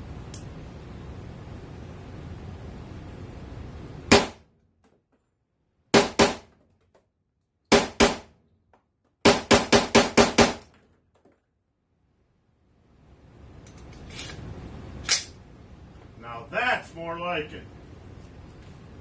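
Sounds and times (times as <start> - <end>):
pistol gunshots: 4.1 - 4.4, 5.9 - 6.5, 7.7 - 8.3, 9.2 - 10.6.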